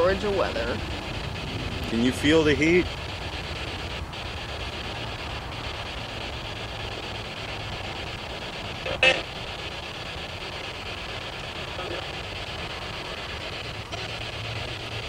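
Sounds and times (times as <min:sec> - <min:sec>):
radio static hiss: 0:00.0 - 0:15.0
brief loud radio sound: 0:08.8 - 0:09.3.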